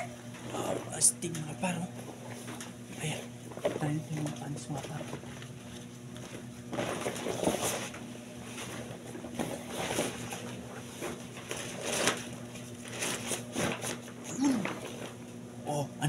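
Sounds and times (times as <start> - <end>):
plastic rain suit rustling: 9.4 - 12.2.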